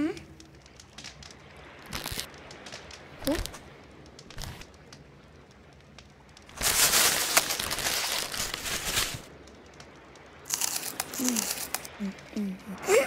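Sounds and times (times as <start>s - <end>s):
plastic bag crinkling: 1.8s - 2.3s, 6.5s - 9.3s, 10.5s - 12.0s.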